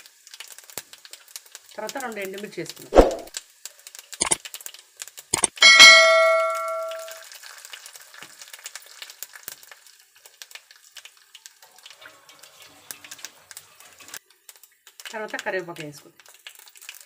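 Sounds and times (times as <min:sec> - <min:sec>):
spices sizzling in hot oil: 0:00.0 - 0:17.0
metallic ring: 0:05.4 - 0:07.2.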